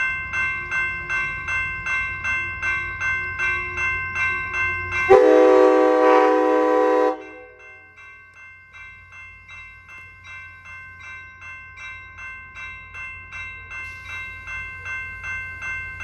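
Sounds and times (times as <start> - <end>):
railroad crossing bell ringing: 0.0 - 16.0.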